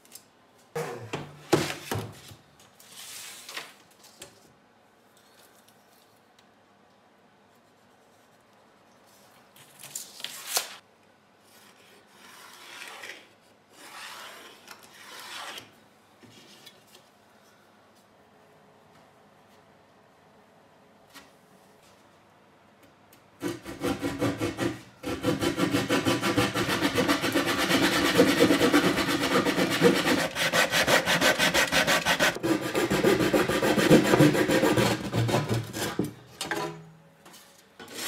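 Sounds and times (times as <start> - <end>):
pencil rubbing along ruler: 23.4 - 34.9.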